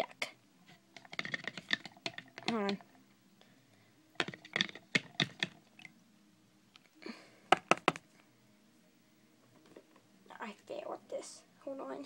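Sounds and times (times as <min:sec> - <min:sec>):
small objects clicking and knocking: 0:00.9 - 0:02.9, 0:04.2 - 0:05.6, 0:07.5 - 0:08.0.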